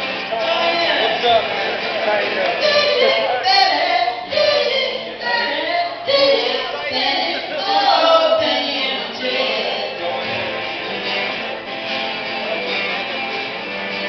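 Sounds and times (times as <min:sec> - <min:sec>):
guitar: 0:00.0 - 0:14.0
person singing: 0:02.6 - 0:10.2.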